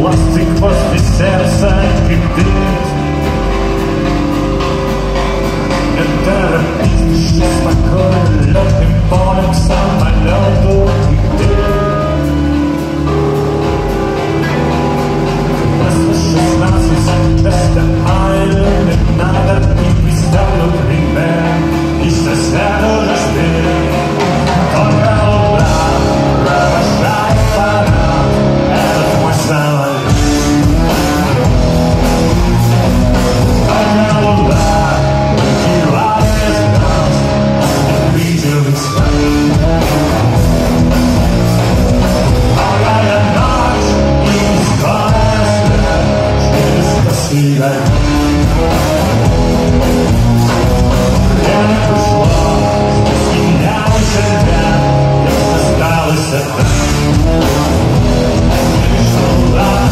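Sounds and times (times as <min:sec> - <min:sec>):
electric guitars: 0:00.0 - 0:59.9
rock band playing live: 0:00.0 - 0:59.9.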